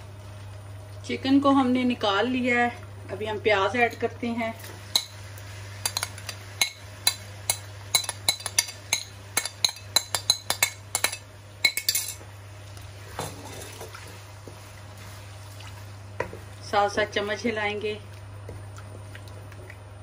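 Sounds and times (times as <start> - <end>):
metal spoon clinking on plate and pan: 5.8 - 12.2.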